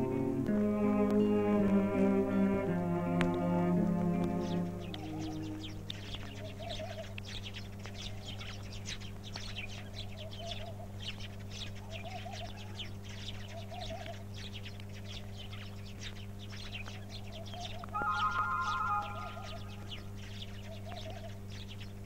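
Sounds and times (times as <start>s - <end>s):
electrical hum: 0.0s - 22.0s
small birds chirping: 0.0s - 22.0s
low warbling bird call: 3.4s - 7.1s, 17.4s - 21.3s.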